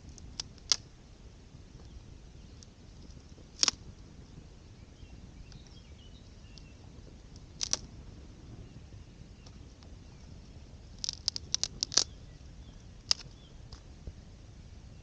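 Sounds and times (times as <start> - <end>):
campfire crackling and popping: 0.0 - 1.0, 1.7 - 4.5, 6.4 - 8.6, 9.4 - 13.9.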